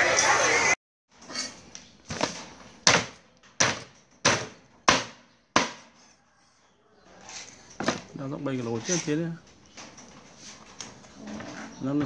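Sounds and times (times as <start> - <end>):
cleaver chopping on wooden block: 2.9 - 5.9.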